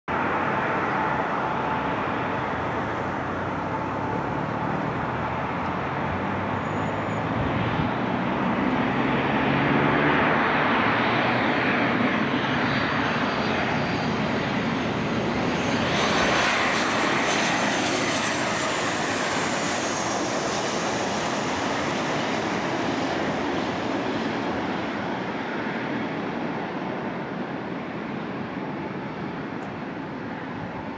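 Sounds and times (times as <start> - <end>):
high jet engine whine: 0.1 - 30.9
jet airliner passing overhead: 0.1 - 30.9.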